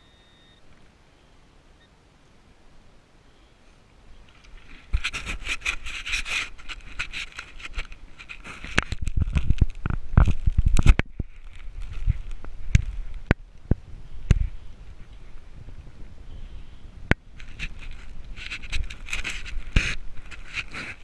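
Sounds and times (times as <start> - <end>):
digging in rocky sand: 3.8 - 16.5, 17.1 - 21.0.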